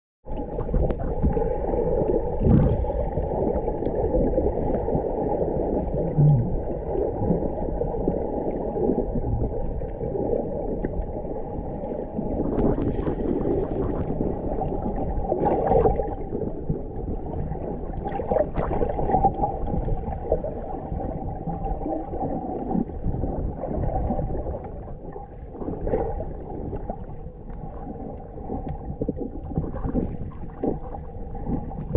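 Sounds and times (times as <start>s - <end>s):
water swishes and gurgles: 0.2s - 31.9s
muffled underwater water rush: 0.3s - 31.9s.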